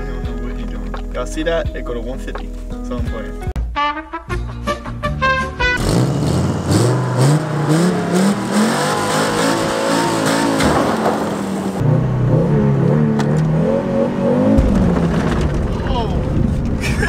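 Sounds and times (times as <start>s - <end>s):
car engine revving: 5.8s - 15.8s.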